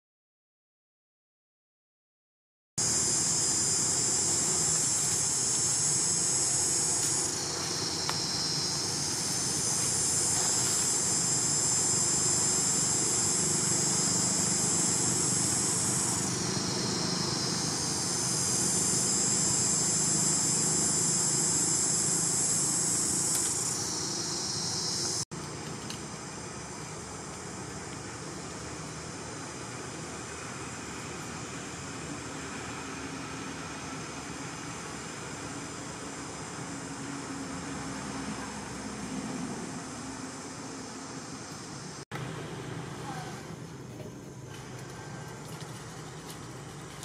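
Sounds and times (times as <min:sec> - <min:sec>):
high-pitched insect chorus: 0:02.8 - 0:25.2.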